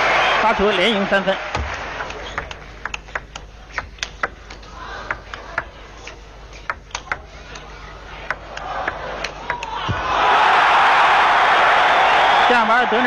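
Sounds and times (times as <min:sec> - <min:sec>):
table tennis ball clicking: 0:01.6 - 0:09.9.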